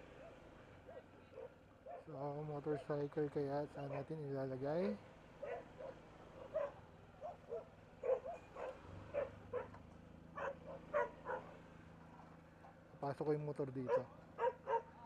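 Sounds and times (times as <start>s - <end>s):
dog barking: 0.1s - 2.9s, 3.8s - 4.1s, 5.4s - 9.8s, 10.4s - 11.6s, 13.8s - 15.0s.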